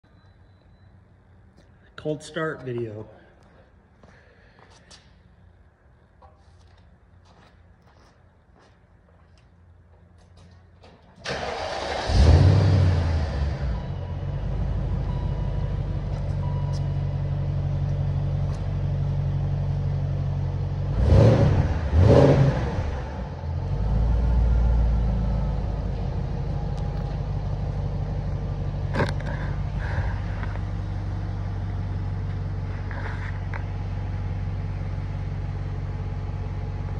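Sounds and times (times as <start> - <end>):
car engine idling and revving: 11.3 - 36.9.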